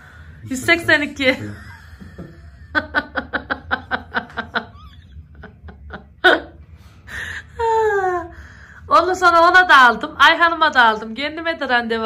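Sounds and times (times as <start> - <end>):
person laughing: 1.5 - 6.6.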